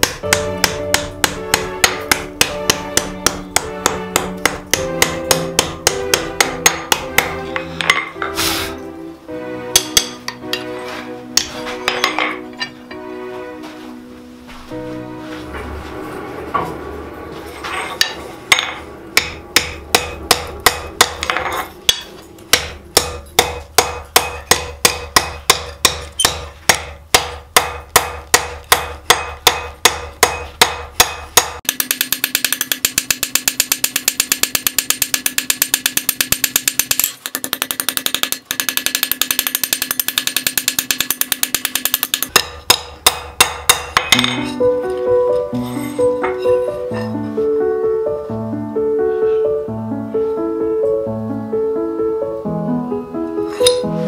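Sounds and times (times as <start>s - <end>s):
hammer striking steel on anvil: 0.0s - 8.4s, 9.7s - 10.7s, 11.3s - 13.0s, 17.9s - 44.6s, 53.6s - 53.9s.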